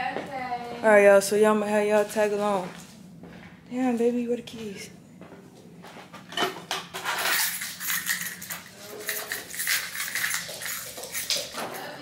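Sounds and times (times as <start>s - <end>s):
keys jingling: 7.1s - 12.0s.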